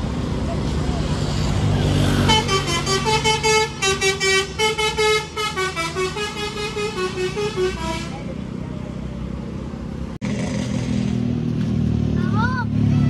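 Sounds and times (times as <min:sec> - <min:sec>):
musical air horn tune: 0:02.2 - 0:08.2.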